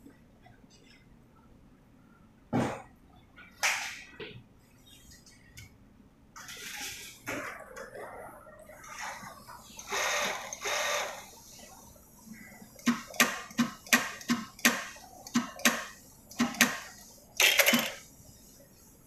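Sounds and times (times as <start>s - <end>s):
industrial sewing machine running: 9.9s - 11.2s.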